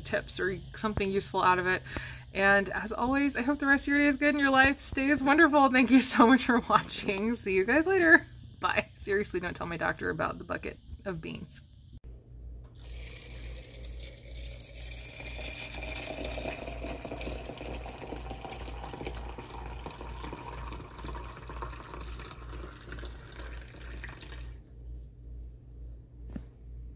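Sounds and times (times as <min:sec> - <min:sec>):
tap water running: 0:12.7 - 0:24.6.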